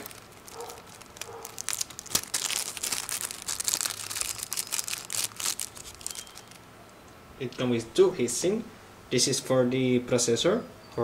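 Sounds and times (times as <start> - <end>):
plastic bag crinkling: 0.0 - 6.7.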